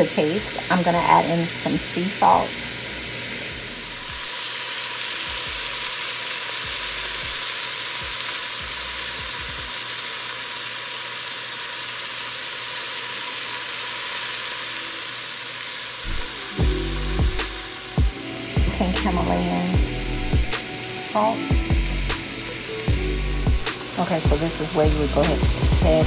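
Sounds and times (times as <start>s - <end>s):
food sizzling in a pot: 0.0s - 26.0s.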